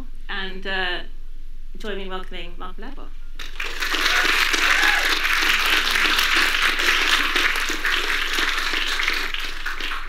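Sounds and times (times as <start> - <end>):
audience applauding: 3.4 - 10.0.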